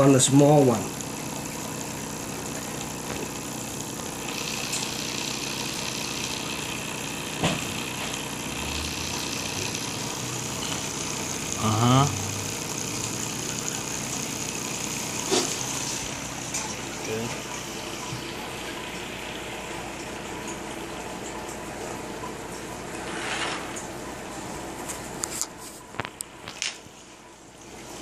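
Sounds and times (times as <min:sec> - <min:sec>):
motor whirring and humming: 0:00.0 - 0:26.9.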